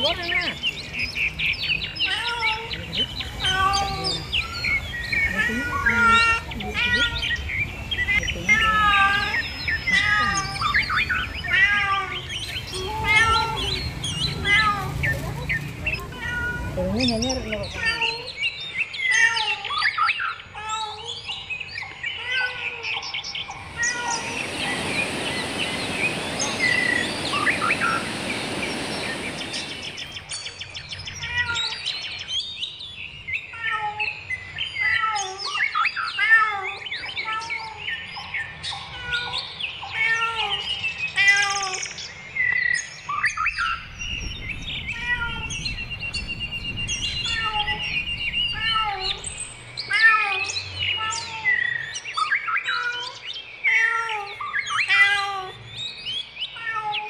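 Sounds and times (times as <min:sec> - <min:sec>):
birds singing and chirping: 0:00.0 - 0:57.0
steady hiss: 0:23.5 - 0:30.4.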